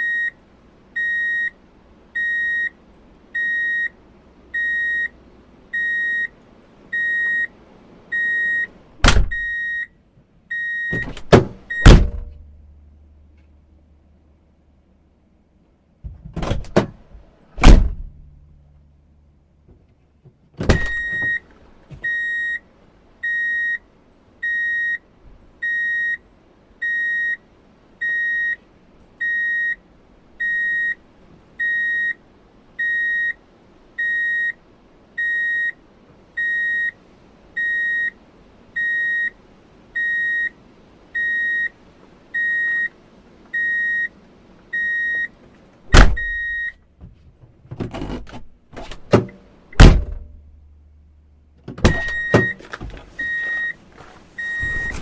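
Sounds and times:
car alarm beeping: 0.0 - 0.4, 1.0 - 1.6, 2.2 - 2.8, 3.4 - 12.3, 20.7 - 26.2, 26.8 - 28.6, 29.2 - 29.8, 30.4 - 31.0, 31.6 - 32.2, 32.8 - 33.4, 34.0 - 34.6, 35.2 - 35.8, 36.4 - 37.0, 37.6 - 38.2, 38.8 - 39.4, 40.0 - 46.8, 51.8 - 52.6, 53.2 - 53.8, 54.4 - 55.0
loud thump: 9.0 - 9.4, 11.0 - 12.4, 17.6 - 18.3, 20.6 - 21.4, 45.9 - 46.4, 49.1 - 50.4.

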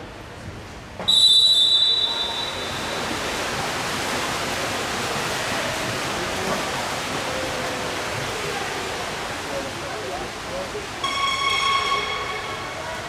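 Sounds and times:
swimmers splashing in indoor pool: 0.0 - 13.0.

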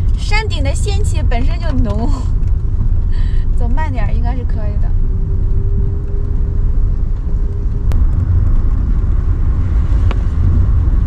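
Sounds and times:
van engine and tyres rumbling: 0.0 - 11.0.

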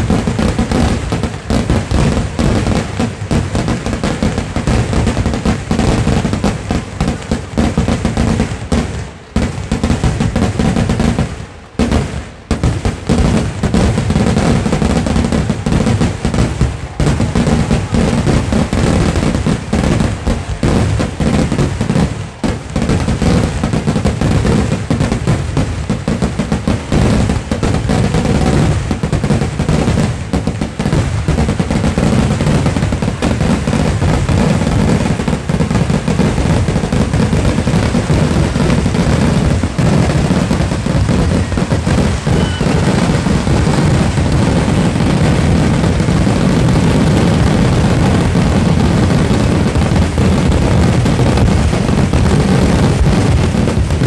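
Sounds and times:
dense fireworks explosions: 0.0 - 54.0.

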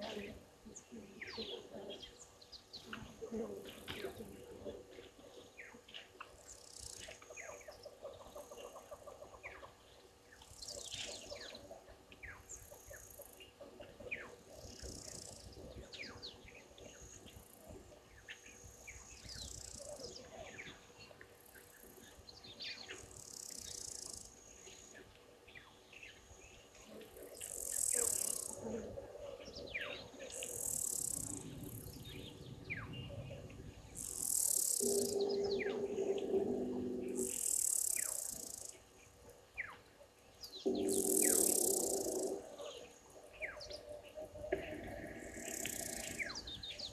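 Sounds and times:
birds chirping and calling: 27.2 - 38.8, 40.4 - 46.9.

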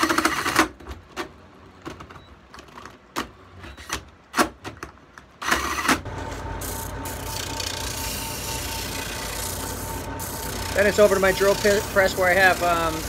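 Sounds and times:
drill press drum sander humming: 5.4 - 13.0.

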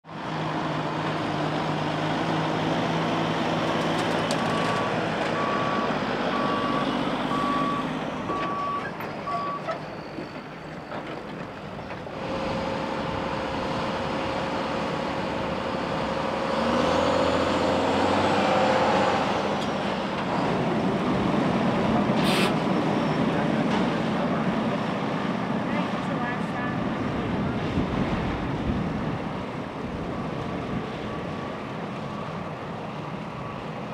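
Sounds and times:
diesel trucks and bulldozer running: 0.0 - 33.9
backup alarm beeping: 4.7 - 9.7
short hiss: 22.2 - 22.6.

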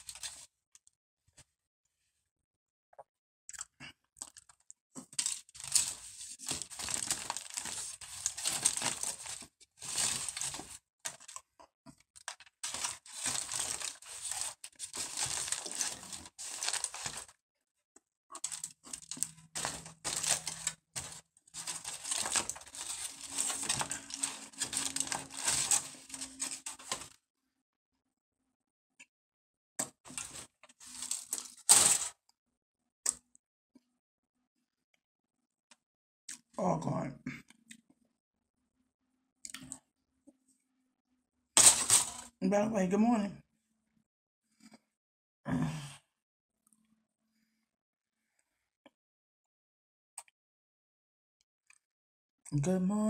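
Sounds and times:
aluminium foil crinkling: 0.0 - 0.4, 5.1 - 11.4, 12.2 - 17.4, 18.4 - 27.1, 30.1 - 32.1, 41.6 - 42.3.

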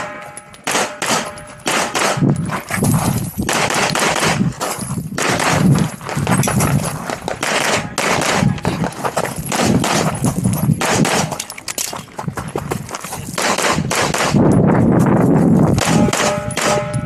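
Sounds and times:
pistol shots: 0.0 - 2.3, 3.5 - 4.4, 5.2 - 5.8, 7.3 - 8.7, 9.5 - 10.1, 10.8 - 11.4, 13.4 - 14.4, 15.8 - 17.0.

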